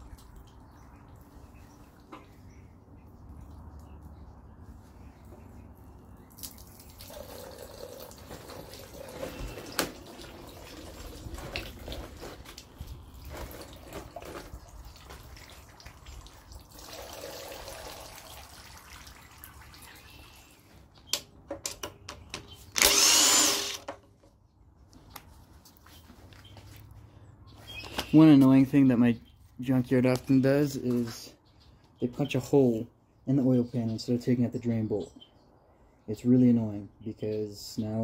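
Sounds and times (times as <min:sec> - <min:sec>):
oil trickling and dripping: 0:00.0 - 0:21.1
impact wrench burst: 0:22.8 - 0:23.9.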